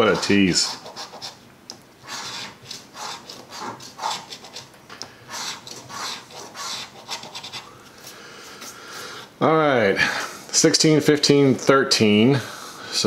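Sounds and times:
coin scratching lottery ticket: 0:00.0 - 0:01.4, 0:02.0 - 0:04.7, 0:05.3 - 0:07.7.

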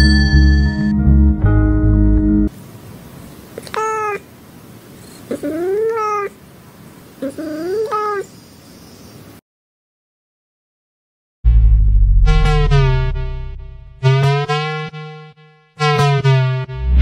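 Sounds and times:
cat meowing: 0:03.6 - 0:04.3, 0:05.3 - 0:06.4, 0:07.2 - 0:08.3.

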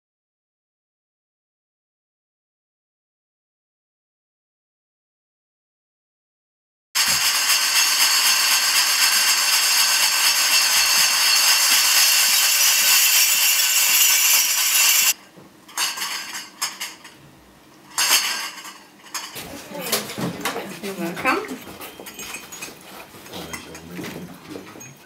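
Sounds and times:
metal cutlery jangling: 0:07.0 - 0:17.2, 0:18.0 - 0:20.1, 0:21.7 - 0:23.8
metallic clinks: 0:21.8 - 0:23.8.

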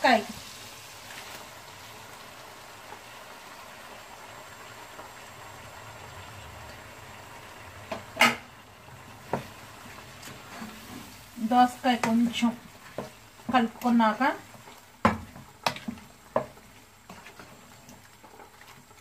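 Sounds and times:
pot hissing on stove: 0:00.0 - 0:19.0
spatula knocking pot: 0:11.9 - 0:14.0, 0:15.0 - 0:16.6.

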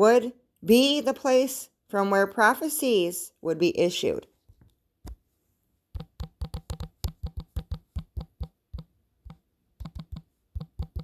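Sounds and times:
tapping on phone screen: 0:06.0 - 0:11.0.

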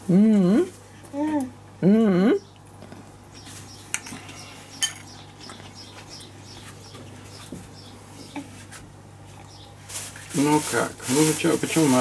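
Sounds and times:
metal spoon clinking on dish: 0:04.8 - 0:05.1.

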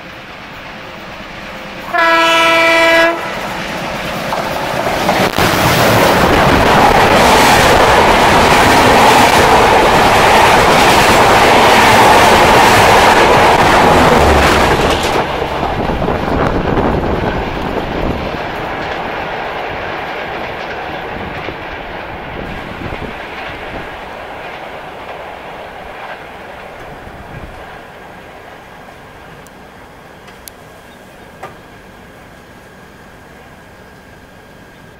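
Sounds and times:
train coaches rushing past: 0:00.0 - 0:34.9
wheels clattering over rail joints: 0:03.9 - 0:25.2.

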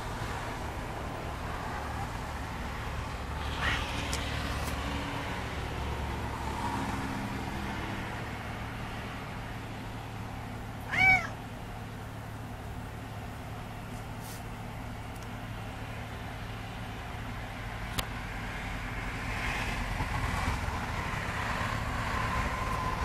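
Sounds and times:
cat meowing: 0:03.4 - 0:04.0, 0:10.8 - 0:11.4.

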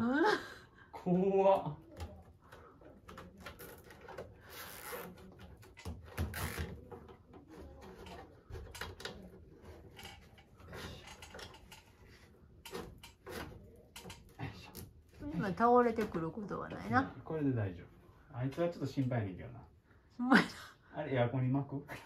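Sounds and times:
small clicks knocks and rustles: 0:01.8 - 0:17.0.

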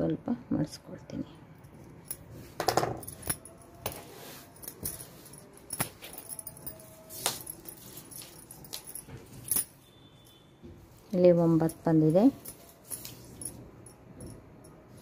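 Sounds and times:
cloth rustling: 0:01.8 - 0:09.8, 0:10.9 - 0:13.6.

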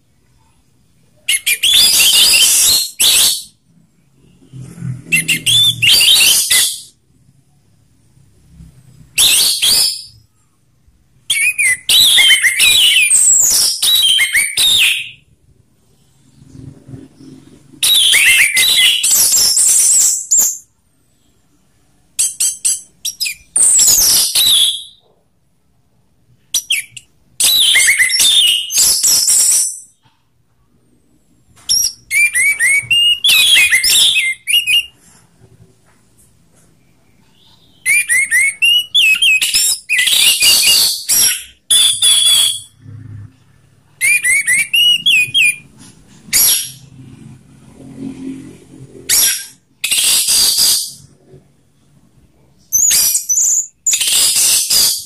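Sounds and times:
thrush singing whistled notes: 0:05.1 - 0:07.0, 0:09.1 - 0:10.3, 0:11.3 - 0:15.3, 0:17.2 - 0:20.7, 0:26.6 - 0:30.0, 0:31.7 - 0:35.0, 0:37.2 - 0:42.9, 0:44.0 - 0:45.7.

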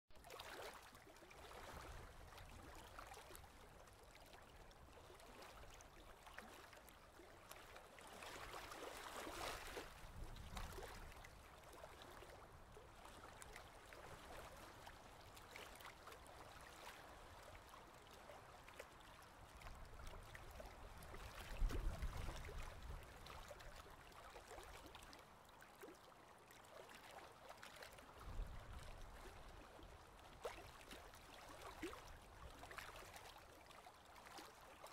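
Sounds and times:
paddle water splashing: 0:00.2 - 0:25.1.

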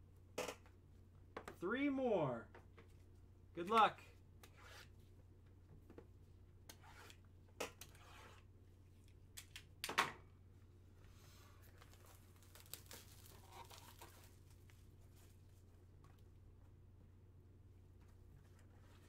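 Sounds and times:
cardboard crackling: 0:11.7 - 0:14.7
card stock rustling and tearing: 0:11.8 - 0:14.7.

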